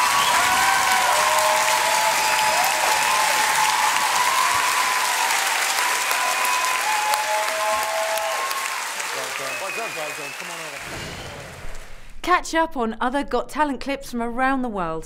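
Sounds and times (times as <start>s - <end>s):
audience whooping: 0.0s - 11.6s
audience applauding: 0.0s - 12.0s.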